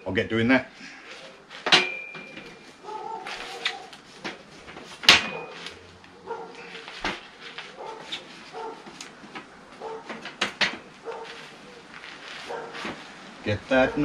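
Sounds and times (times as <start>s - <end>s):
dog barking: 2.8s - 3.9s, 6.2s - 6.8s, 7.7s - 8.9s, 9.8s - 10.1s, 11.0s - 11.4s, 12.5s - 12.8s.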